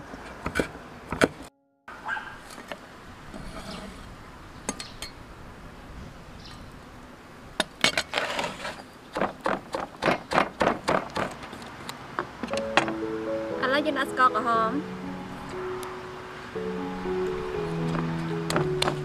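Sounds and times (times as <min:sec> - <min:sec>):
cleaver scraping: 0:03.3 - 0:04.1, 0:08.0 - 0:08.9
pestle pounding in stone mortar: 0:09.1 - 0:11.4.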